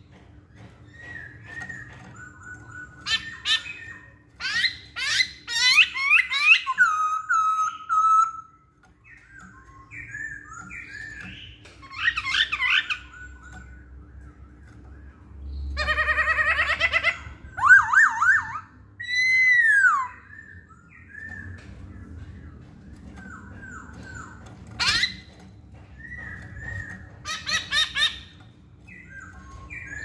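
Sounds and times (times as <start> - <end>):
bird singing whistled phrases: 0.9 - 21.7, 28.9 - 30.0.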